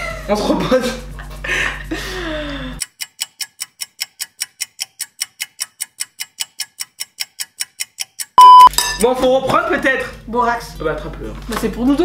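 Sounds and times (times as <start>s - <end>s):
clock ticking: 2.8s - 8.7s.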